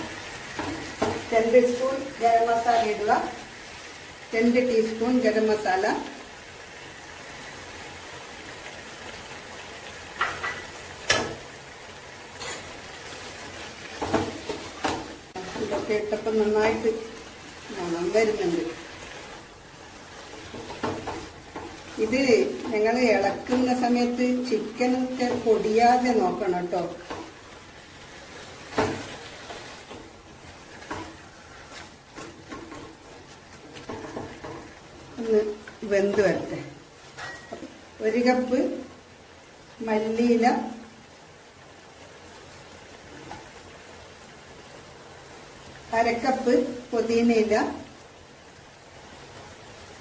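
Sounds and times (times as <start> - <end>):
food sizzling in a pan: 0.0 - 50.0
spatula scraping through food: 12.4 - 14.8
spoon stirring in pan: 12.4 - 23.9, 26.8 - 37.8.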